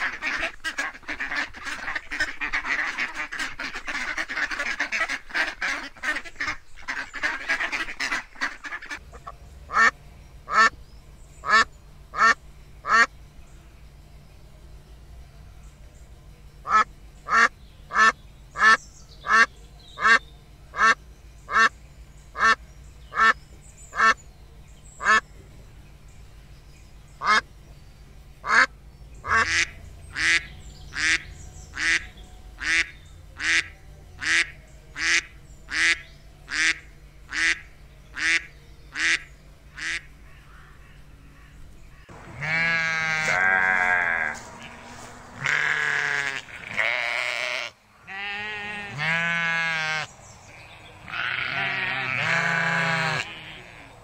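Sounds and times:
duck quacking: 0:00.0 - 0:09.9, 0:10.5 - 0:10.8, 0:11.4 - 0:13.1, 0:16.6 - 0:21.8, 0:22.4 - 0:23.4, 0:24.0 - 0:24.2, 0:25.0 - 0:25.2, 0:27.2 - 0:27.4, 0:28.4 - 0:50.1
sheep bleating: 0:42.2 - 0:50.1, 0:51.0 - 0:54.0.

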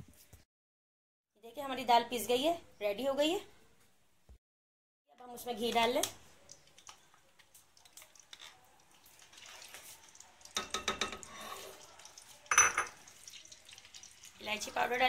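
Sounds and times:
metal spoon clinking on cookware: 0:10.5 - 0:11.6, 0:12.5 - 0:13.0.

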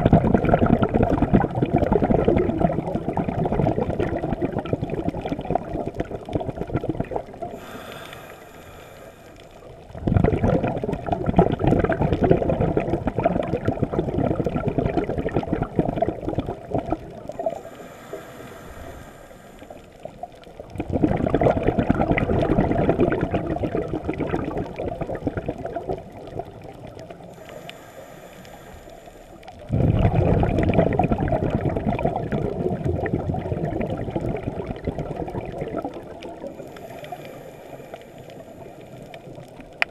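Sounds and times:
exhaled bubbles rushing: 0:00.0 - 0:08.4, 0:09.6 - 0:27.7, 0:29.4 - 0:39.8
regulator inhalation hiss: 0:07.5 - 0:09.7, 0:17.4 - 0:20.2, 0:27.4 - 0:29.5, 0:36.6 - 0:39.1.

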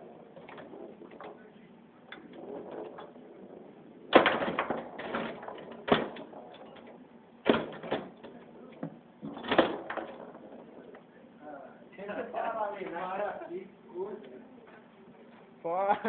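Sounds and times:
foosball clacks on wooden table: 0:02.1 - 0:11.1.

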